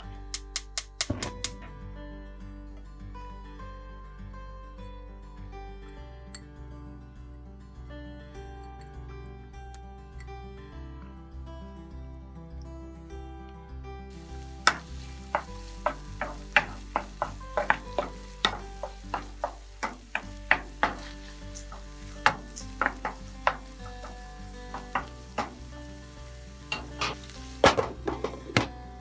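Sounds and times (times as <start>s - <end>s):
food sizzling in oil: 14.1s - 29.0s
wooden spoon stirring: 14.2s - 28.5s.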